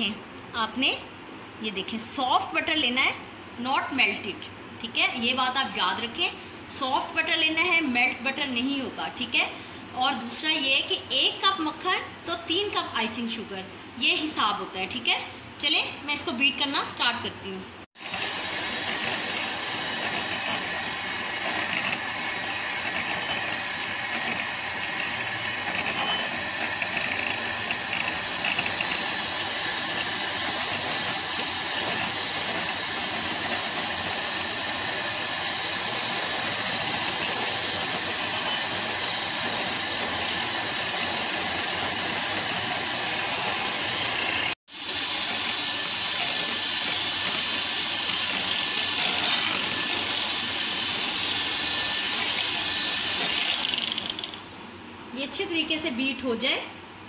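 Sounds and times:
electric hand mixer running: 18.0 - 54.5.

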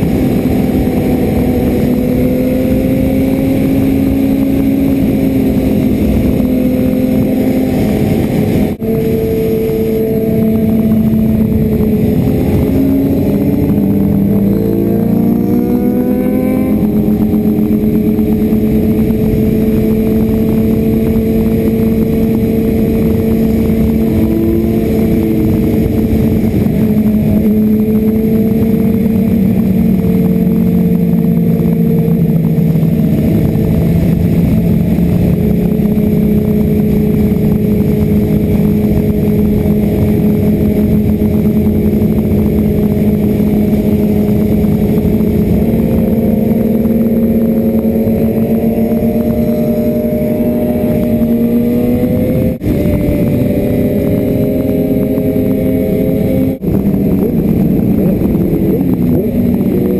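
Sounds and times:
motorcycle engine accelerating: 0.0 - 59.9
wind rush on helmet: 0.0 - 59.9.

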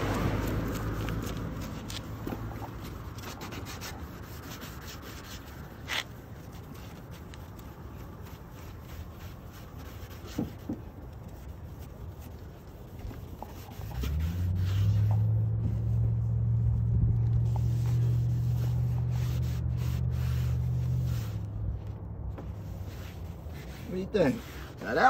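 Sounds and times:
scrubbing plastic: 0.0 - 16.2.

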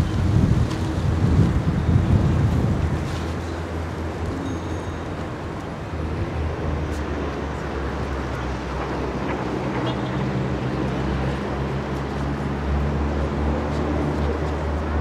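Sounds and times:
wind on microphone: 0.0 - 4.4.

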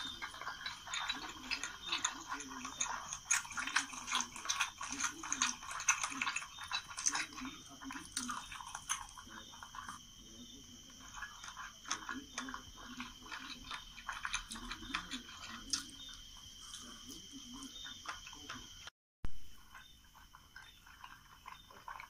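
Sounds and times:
crunchy eating clicks: 0.0 - 18.9, 19.6 - 22.0
high insect trill: 0.0 - 18.9
wet chewing: 0.0 - 18.9, 19.6 - 22.0.

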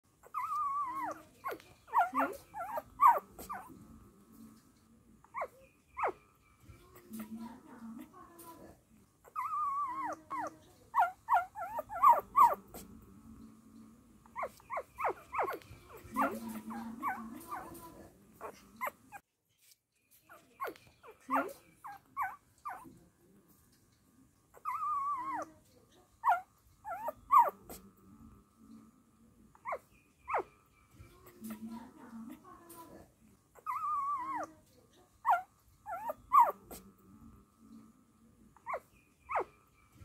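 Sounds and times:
puppies squeaking and whimpering: 0.2 - 3.7, 5.3 - 6.2, 9.3 - 12.8, 14.3 - 19.2, 20.4 - 22.9, 24.5 - 25.5, 26.2 - 27.7, 29.6 - 30.5, 33.6 - 34.5, 35.2 - 36.8, 38.6 - 39.5.

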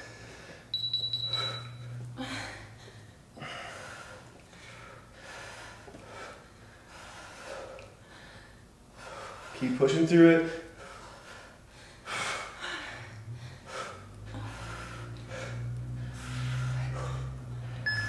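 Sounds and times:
thin high tone: 0.7 - 1.9
person breathing hard: 1.3 - 9.7, 10.5 - 17.9.

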